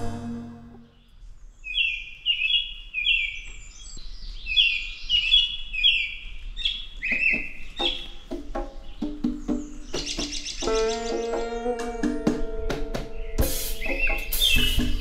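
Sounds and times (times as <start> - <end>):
music: 0.0 - 0.9, 7.2 - 15.0
bird singing high notes: 8.9 - 12.0, 13.0 - 15.0.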